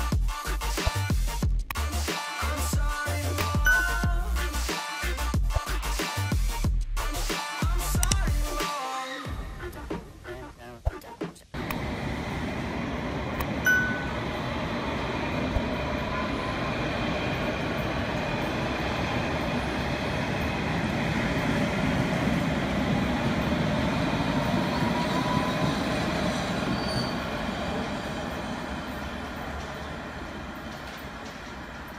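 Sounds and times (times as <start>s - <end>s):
train rumbling on rails: 11.6s - 31.9s
wheel squeals: 24.4s - 27.5s.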